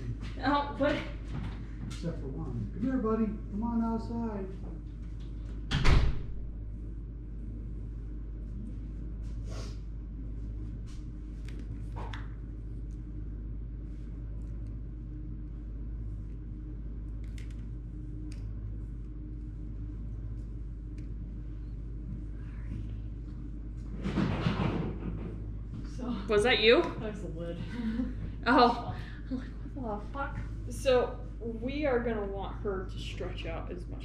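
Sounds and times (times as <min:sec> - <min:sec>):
low hum: 0:00.0 - 0:34.0.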